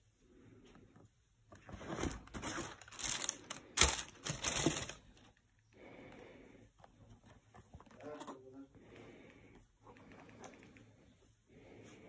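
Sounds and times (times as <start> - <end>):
tissue paper rustling: 1.8 - 5.1.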